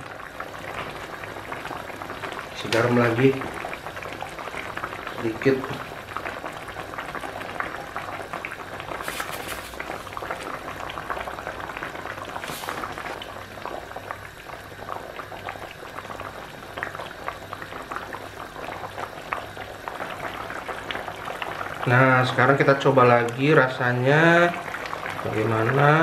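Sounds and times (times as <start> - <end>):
broth bubbling at a boil: 0.0 - 26.0
brief hisses: 9.0 - 10.1.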